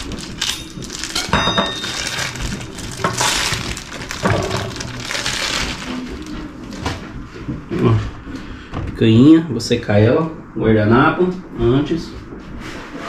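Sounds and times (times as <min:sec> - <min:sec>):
kitchenware scraping clatter: 0:00.0 - 0:06.3
kitchenware clink: 0:00.4 - 0:02.4.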